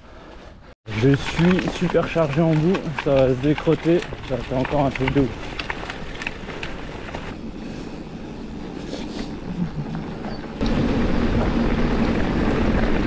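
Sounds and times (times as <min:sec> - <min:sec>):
gravel clicks: 0:00.1 - 0:07.6, 0:08.7 - 0:13.0
bike tyres rolling over gravel: 0:00.3 - 0:07.6, 0:10.3 - 0:13.0
wind rumble on microphone: 0:02.4 - 0:13.0
low hum: 0:05.3 - 0:13.0.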